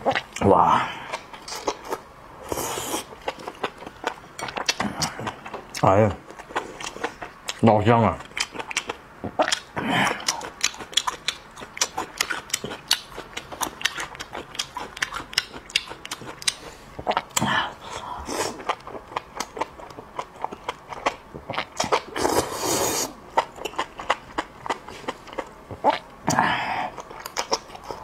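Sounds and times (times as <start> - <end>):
slurping: 1.1 - 3.5, 21.8 - 23.8
crisp crunching and chewing: 2.6 - 22.5, 26.9 - 28.0.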